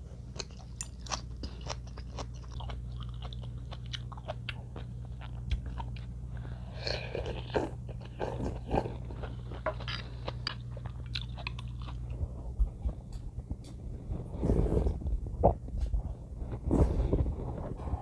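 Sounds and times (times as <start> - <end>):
steady low hum: 0.0 - 18.0
wet chewing and crunching: 0.3 - 13.8.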